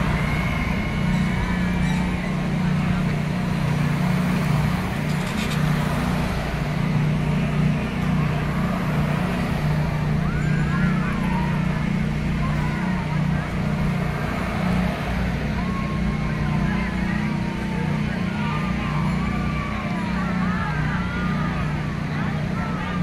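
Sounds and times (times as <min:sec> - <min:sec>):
cars passing close by: 0:00.0 - 0:23.0
faint distant voices: 0:00.0 - 0:23.0
road traffic drone: 0:00.0 - 0:23.0.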